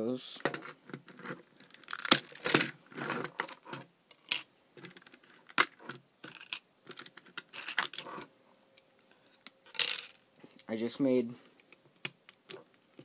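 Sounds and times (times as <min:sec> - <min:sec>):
plastic bricks clicking and rattling: 0:00.5 - 0:08.3.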